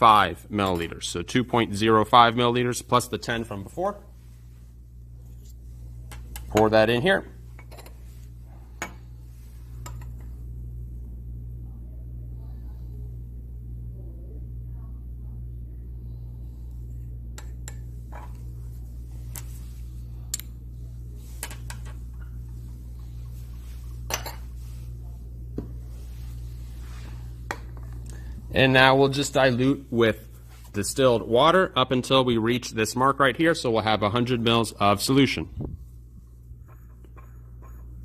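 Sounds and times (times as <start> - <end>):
low room hum: 0.0 - 38.0
glassware clinking: 7.6 - 8.1, 24.1 - 24.6.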